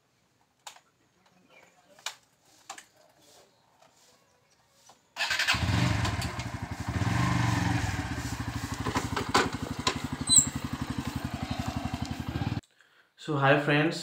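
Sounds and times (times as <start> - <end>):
motorcycle engine starting and idling: 5.2 - 12.6.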